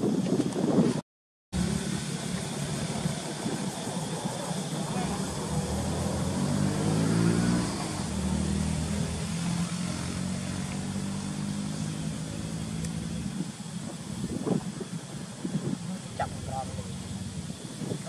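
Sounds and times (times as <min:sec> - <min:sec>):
engine running: 0:01.6 - 0:18.0.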